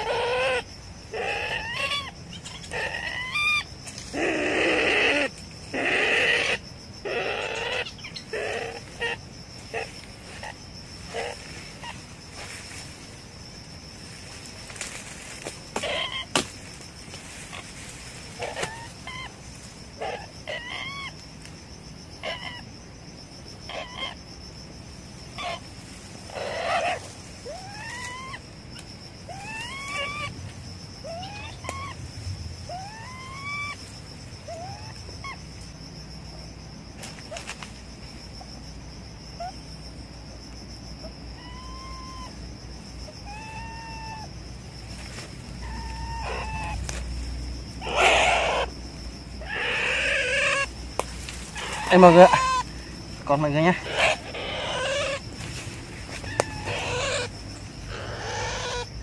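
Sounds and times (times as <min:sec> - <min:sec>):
animal squeaking and whining: 0:00.0 - 0:12.0, 0:15.8 - 0:16.4, 0:17.4 - 0:19.4, 0:20.0 - 0:21.2, 0:22.2 - 0:22.6, 0:23.7 - 0:24.2, 0:25.4 - 0:30.4, 0:31.0 - 0:32.0, 0:32.7 - 0:35.4, 0:41.3 - 0:42.4, 0:43.1 - 0:44.3, 0:45.6 - 0:47.0, 0:47.8 - 0:48.7, 0:49.4 - 0:50.8, 0:51.4 - 0:52.7, 0:53.7 - 0:59.0
high insect hum: 0:00.0 - 0:59.0.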